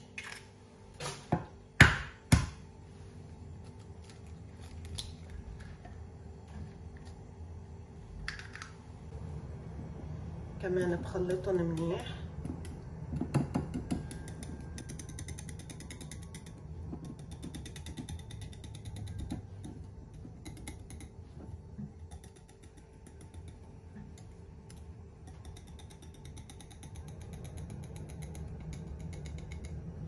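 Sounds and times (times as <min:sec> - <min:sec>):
whisk knocking bowl: 0:12.4 - 0:24.2
whisk rattling in bowl: 0:13.4 - 0:21.4, 0:22.0 - 0:23.7.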